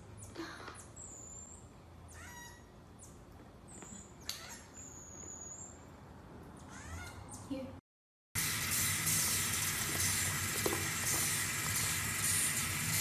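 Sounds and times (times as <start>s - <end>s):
marmoset rising chirps: 0.2s - 5.9s.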